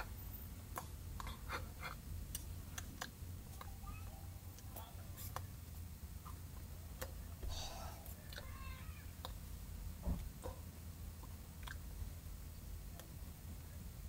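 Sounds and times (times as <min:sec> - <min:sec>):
faint breathy vocal sound: 0:07.4 - 0:08.4
dull thump: 0:10.0 - 0:10.6.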